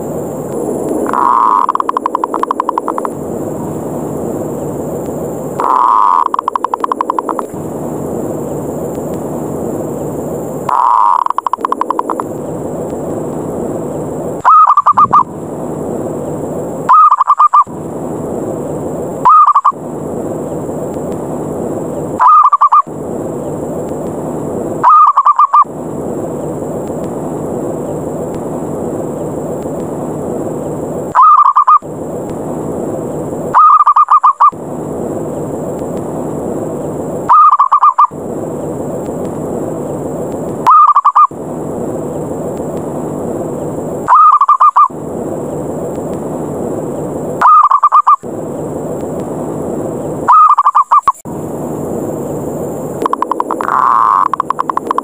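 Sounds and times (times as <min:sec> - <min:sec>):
steady hiss: 0:00.0 - 0:47.4, 0:48.2 - 0:55.0
dove rolling coos: 0:01.0 - 0:03.0, 0:05.6 - 0:07.3, 0:10.7 - 0:12.2, 0:14.4 - 0:15.3, 0:16.9 - 0:17.7, 0:19.2 - 0:19.8, 0:22.2 - 0:22.9, 0:24.8 - 0:25.7, 0:31.1 - 0:31.8, 0:33.5 - 0:34.5, 0:37.3 - 0:38.1, 0:40.7 - 0:41.3, 0:44.1 - 0:44.9, 0:47.4 - 0:48.2, 0:50.3 - 0:51.0, 0:53.2 - 0:55.0.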